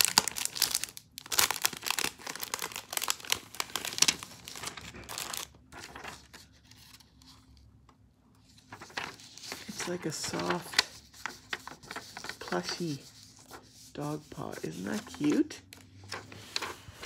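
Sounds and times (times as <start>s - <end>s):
plastic bag crinkling: 0.0s - 5.6s.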